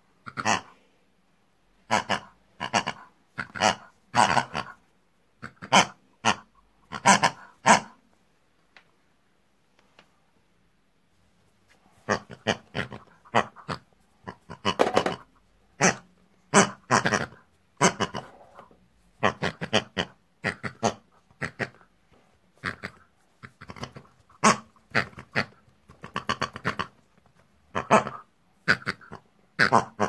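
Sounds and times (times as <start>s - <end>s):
pig-style grunts and squeals: 0.2s - 0.8s, 12.1s - 15.2s, 15.8s - 21.9s, 22.6s - 27.0s, 27.7s - 30.0s.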